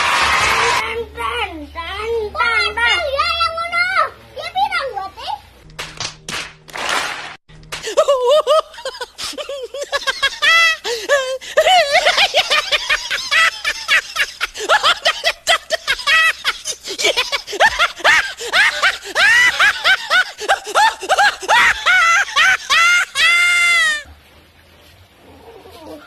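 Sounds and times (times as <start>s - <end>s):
hysterical high-pitched laughter: 7.8s - 24.1s.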